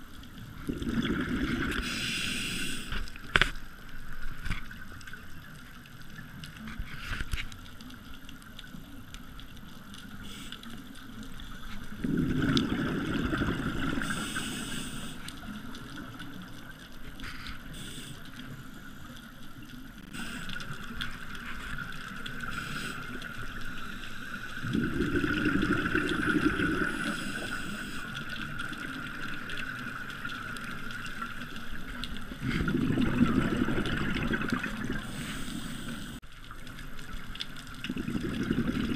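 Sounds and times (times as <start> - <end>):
exhaled bubbles underwater: 0.0 - 2.5, 11.2 - 17.0, 24.4 - 38.9
hissing inhalations: 1.8 - 3.0, 14.0 - 15.3, 17.3 - 18.4, 22.5 - 24.8, 26.7 - 28.1, 35.0 - 36.2.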